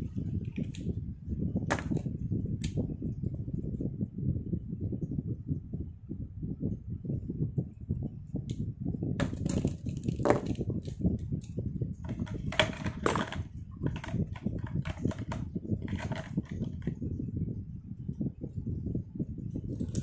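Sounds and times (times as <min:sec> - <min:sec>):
pen clicks and paper rustles: 0:00.4 - 0:00.9, 0:09.2 - 0:17.0
pen knocking on notebook: 0:01.7 - 0:02.1, 0:09.2 - 0:10.6, 0:12.0 - 0:17.0.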